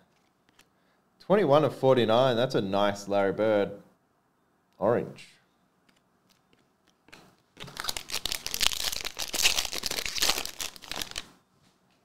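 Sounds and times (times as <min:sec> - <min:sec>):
foil wrapper crinkling: 0:06.3 - 0:11.3.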